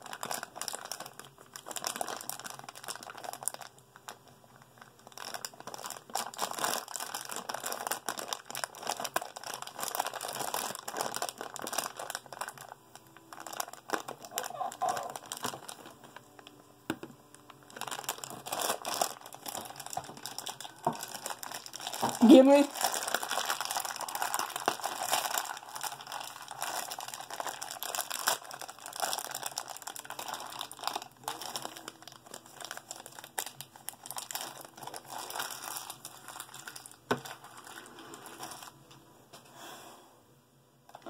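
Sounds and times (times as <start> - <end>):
foil bag crinkling: 0.0 - 38.8.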